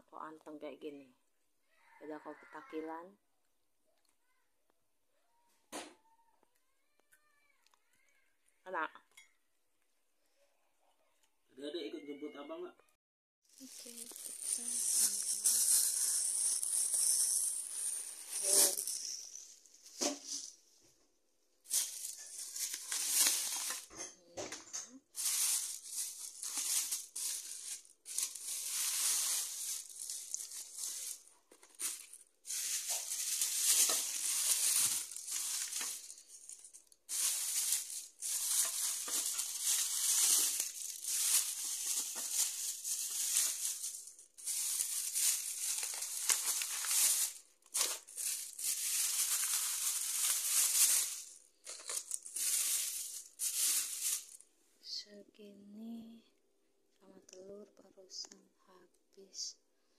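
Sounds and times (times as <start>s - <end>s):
plastic bags rustling: 13.5s - 20.8s, 21.6s - 54.4s.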